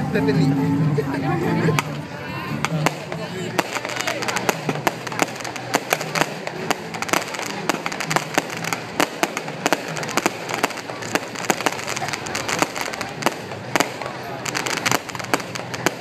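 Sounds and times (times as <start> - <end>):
fireworks bursting and crackling: 1.7 - 16.0.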